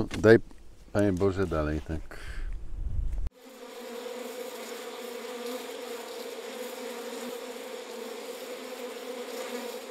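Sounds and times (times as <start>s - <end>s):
honeybees buzzing: 3.3s - 9.9s.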